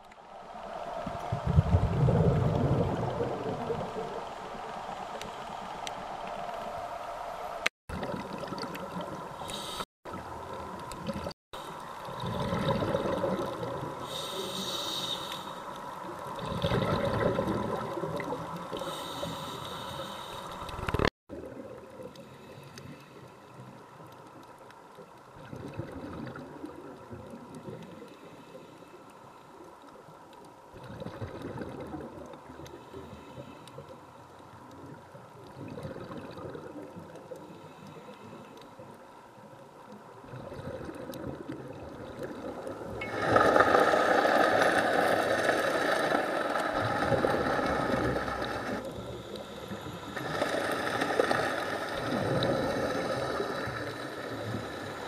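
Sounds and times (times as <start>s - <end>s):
steady water hiss: 0.0s - 55.0s
diver's breathing bubbles gurgling: 0.6s - 6.8s, 10.5s - 15.2s, 16.2s - 23.0s, 25.4s - 28.0s, 30.8s - 33.2s, 34.8s - 38.0s, 40.2s - 55.0s.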